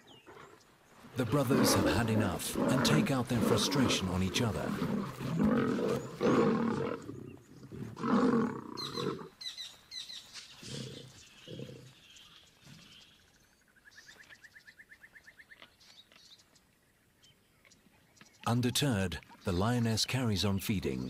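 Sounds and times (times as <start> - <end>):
lions growling and roaring: 0.0 - 9.3, 10.6 - 12.0.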